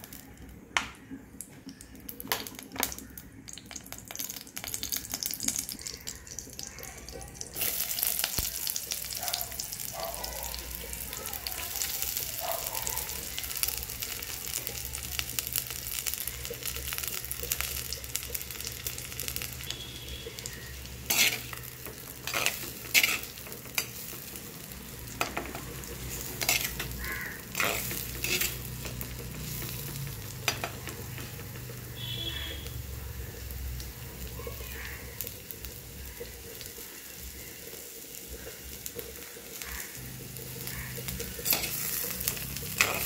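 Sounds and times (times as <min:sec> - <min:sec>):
onions sizzling in hot oil: 0:00.0 - 0:43.0
spoon scraping clay pot: 0:21.1 - 0:21.5.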